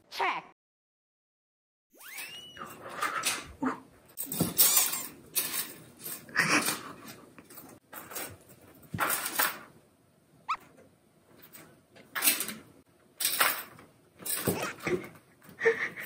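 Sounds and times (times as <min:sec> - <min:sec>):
rising squeak: 0:02.0 - 0:02.8
toy rod rattling and scraping: 0:04.2 - 0:08.4.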